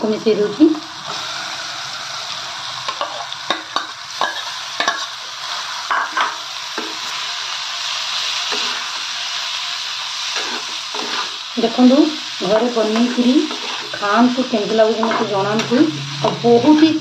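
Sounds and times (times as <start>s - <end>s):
masala sizzling in a pan: 0.0s - 17.0s
metal spatula scraping a pan: 2.9s - 7.2s, 10.2s - 17.0s.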